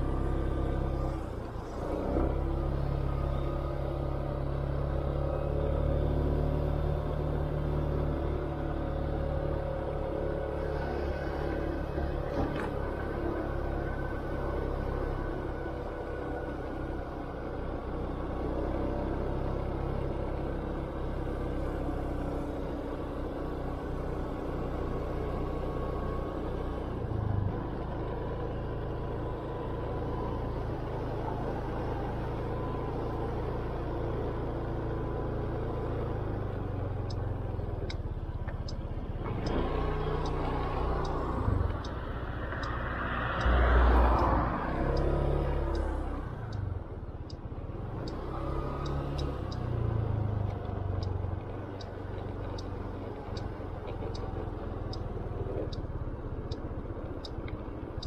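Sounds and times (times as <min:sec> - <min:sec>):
wind and road noise: 0:00.0 - 0:58.0
turn signal ticking: 0:35.7 - 0:58.0.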